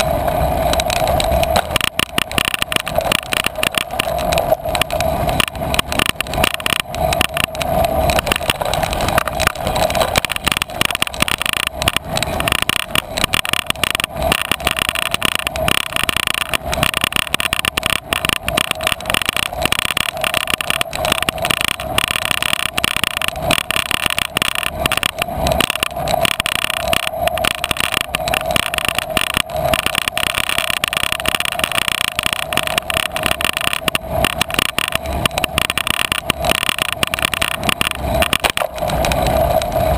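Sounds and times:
bicycle rolling rumble: 0:00.0 - 0:39.9
bike knocking and rattling: 0:00.0 - 0:39.9.

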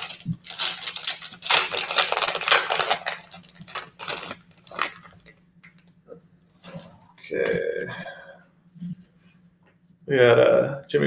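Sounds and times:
foil pack tearing and crinkling: 0:00.0 - 0:05.8.

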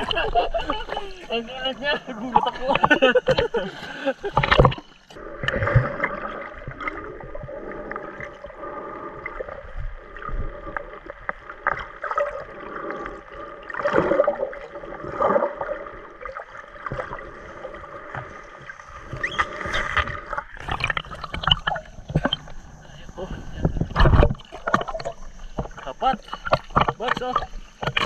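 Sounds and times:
faint steady hum: 0:00.0 - 0:28.0
underwater sloshing and gurgles: 0:00.0 - 0:28.0
underwater clicks and knocks: 0:02.3 - 0:03.6, 0:04.2 - 0:07.0, 0:18.1 - 0:28.0.

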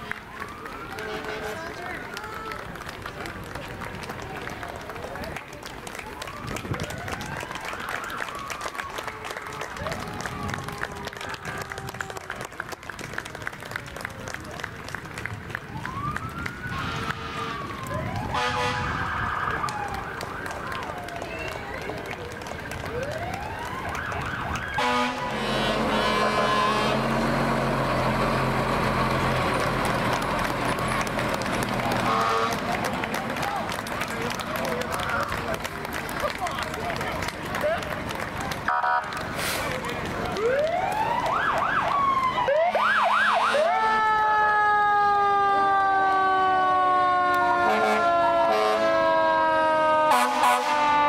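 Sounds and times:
siren wailing: 0:00.1 - 0:01.8, 0:06.2 - 0:12.3, 0:15.7 - 0:22.1, 0:22.8 - 0:26.8, 0:40.4 - 0:51.0
short horn blast: 0:18.3 - 0:18.9, 0:24.8 - 0:27.3, 0:32.0 - 0:32.7, 0:47.6 - 0:49.0, 0:50.1 - 0:51.0
truck engine running: 0:21.7 - 0:40.9.

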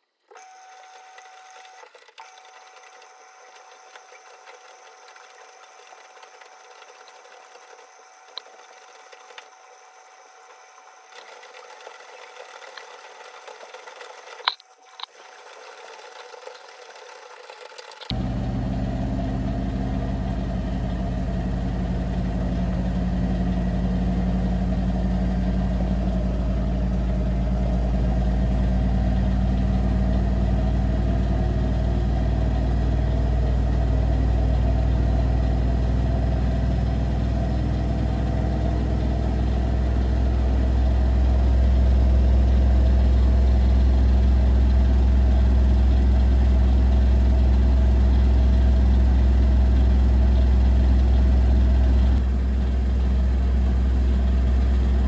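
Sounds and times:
washing machine spinning: 0:00.3 - 0:55.0.

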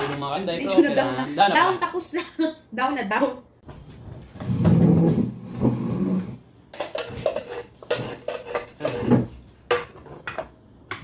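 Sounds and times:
utensils scraping a pot: 0:04.7 - 0:10.4.

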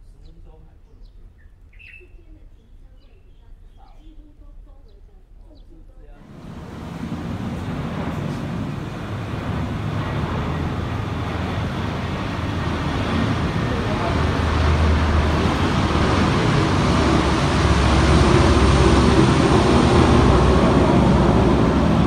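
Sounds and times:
road traffic rumble: 0:06.2 - 0:22.0.

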